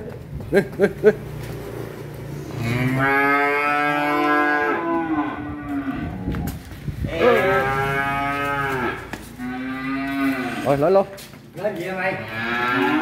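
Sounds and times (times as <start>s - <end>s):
cow mooing: 2.5s - 6.3s, 7.1s - 10.8s, 12.1s - 13.0s.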